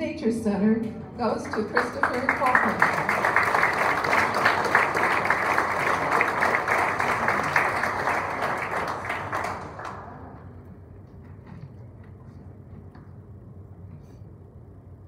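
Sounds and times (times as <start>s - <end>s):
audience applauding: 1.2s - 10.6s.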